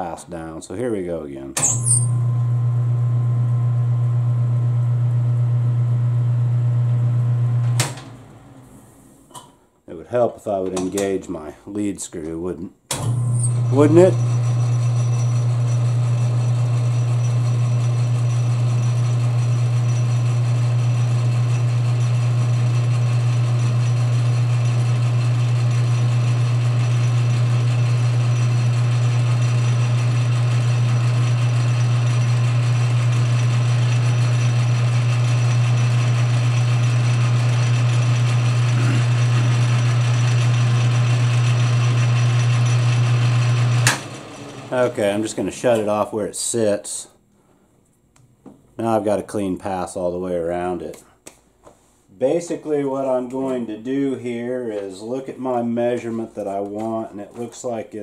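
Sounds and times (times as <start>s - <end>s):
metal lathe humming: 13.4s - 45.4s.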